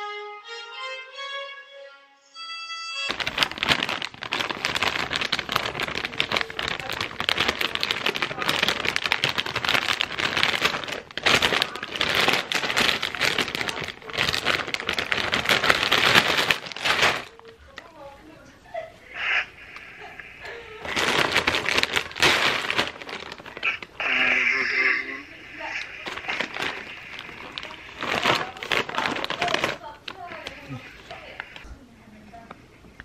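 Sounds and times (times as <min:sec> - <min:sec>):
violin-like music: 0:00.0 - 0:03.1
plastic snack bag crinkling: 0:03.0 - 0:18.4, 0:20.0 - 0:31.7.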